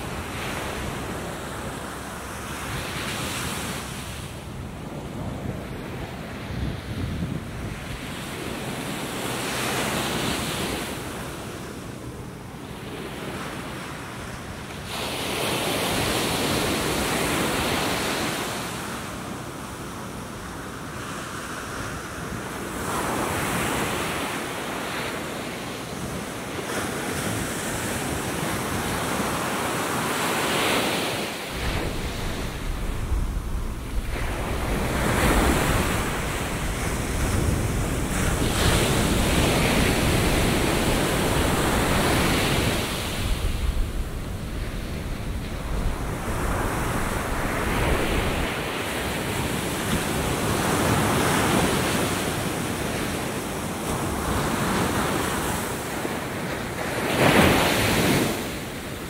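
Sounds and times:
wind buffeting microphone: 0:00.0 - 0:12.7, 0:31.5 - 0:55.4
surf breaking on a beach: 0:00.0 - 0:59.0
low rumble: 0:31.6 - 0:38.4.

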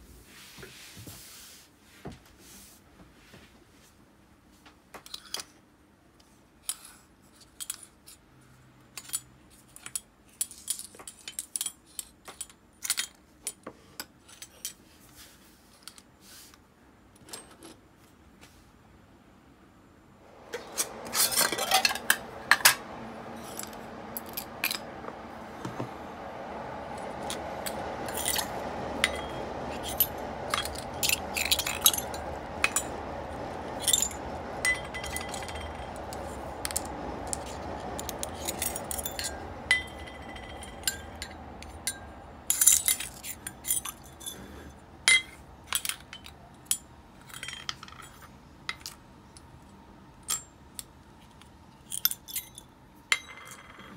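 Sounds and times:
metal parts clinking: 0:28.1 - 0:32.9, 0:41.9 - 0:44.5.

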